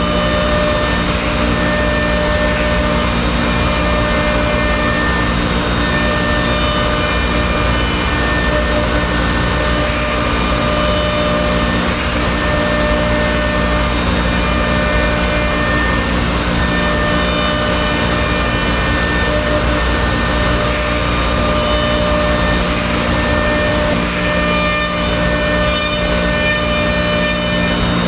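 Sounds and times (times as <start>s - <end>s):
router spindle whining: 0.0s - 28.0s.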